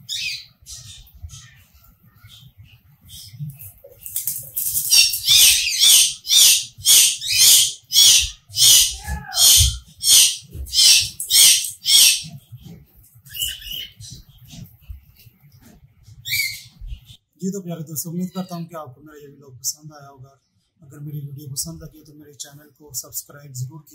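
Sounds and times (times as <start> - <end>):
cockatiels calling harshly: 4.8 - 12.4, 13.3 - 14.3, 16.2 - 16.8.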